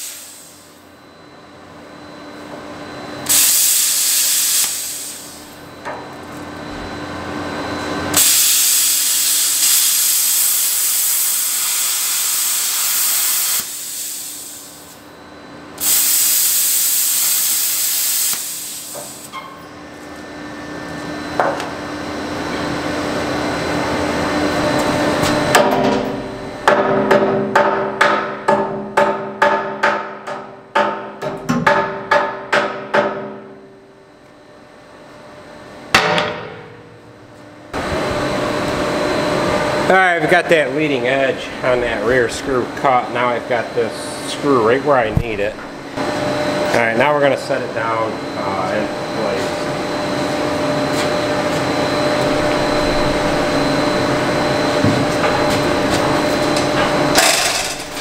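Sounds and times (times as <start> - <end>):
cutting torch hissing: 0.0 - 0.8, 3.2 - 5.6, 8.1 - 15.0, 15.8 - 19.3
hammer striking steel: 25.6 - 33.6, 36.0 - 36.9.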